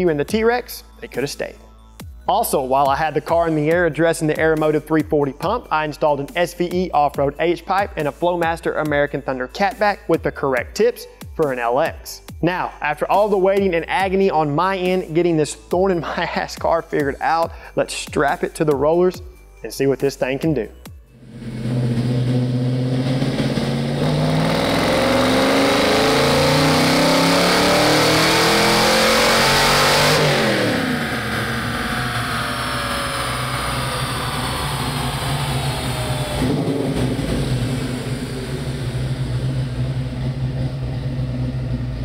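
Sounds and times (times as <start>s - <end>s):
supercharger whine: 21.1s - 42.0s
car engine revving at full throttle: 21.2s - 42.0s.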